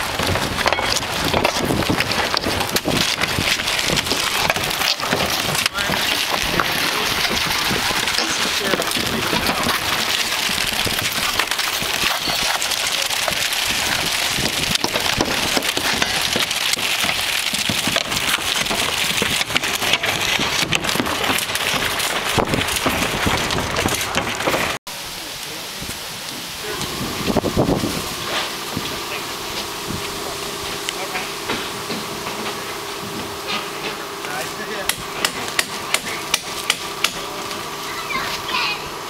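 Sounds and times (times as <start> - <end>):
shingles scraped and dropped: 0.0 - 24.8.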